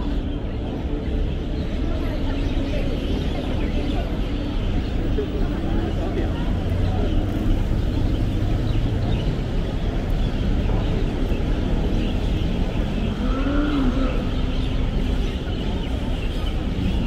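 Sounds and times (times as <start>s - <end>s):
faint passing voices: 0.0s - 17.0s
road traffic rumble: 0.0s - 17.0s.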